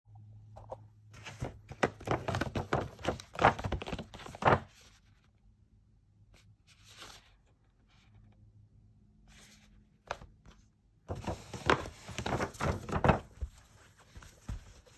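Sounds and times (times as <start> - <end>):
paper bag rustling and crinkling: 11.1 - 14.9.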